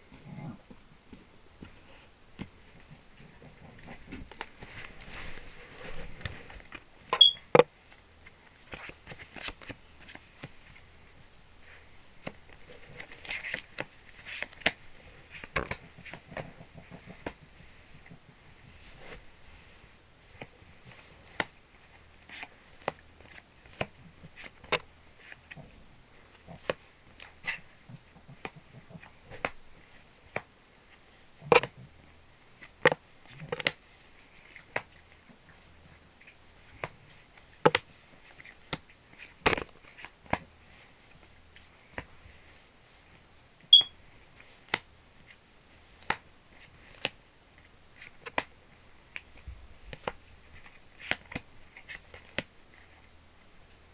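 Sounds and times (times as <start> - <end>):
cards and wrappers clicking and snapping: 12.2 - 17.4, 22.2 - 25.6, 36.2 - 40.8, 48.0 - 48.5, 49.1 - 52.9.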